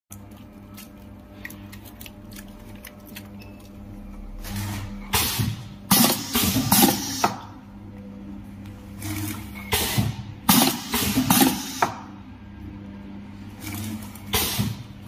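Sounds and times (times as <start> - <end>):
pneumatic air hiss and clatter: 5.1 - 7.4, 9.7 - 12.0, 14.3 - 14.8.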